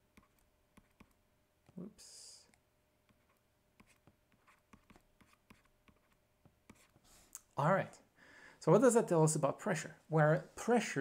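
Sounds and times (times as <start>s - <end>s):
stylus tapping on tablet screen: 0.1s - 1.8s, 3.0s - 6.9s.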